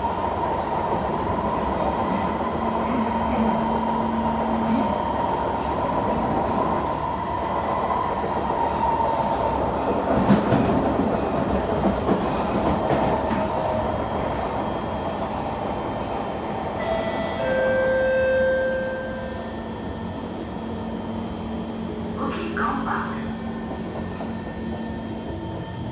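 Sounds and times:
train wheels rumbling: 0.0s - 18.1s.

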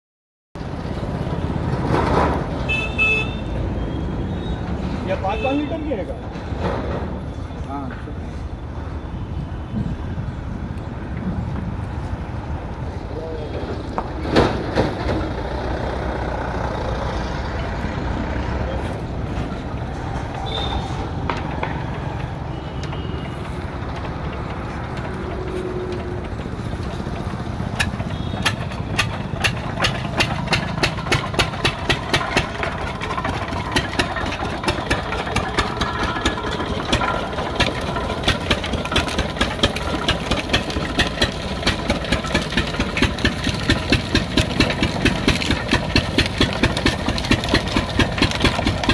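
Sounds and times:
diesel engine running: 13.7s - 48.9s.

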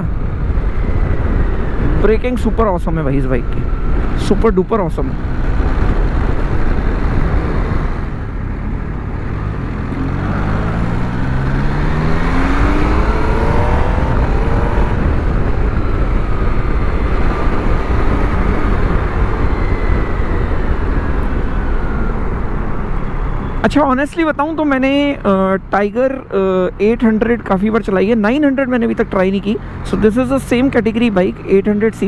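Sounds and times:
motorcycle engine accelerating: 0.0s - 24.0s
riding wind noise: 0.0s - 32.0s.

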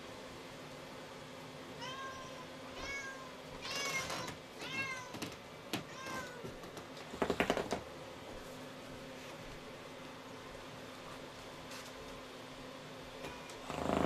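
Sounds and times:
cat meowing: 1.8s - 5.2s.

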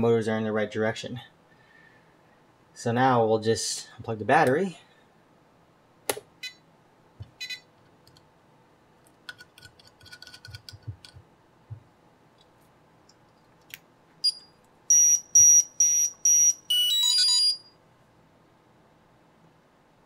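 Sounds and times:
high electronic beeps: 14.2s - 17.7s.

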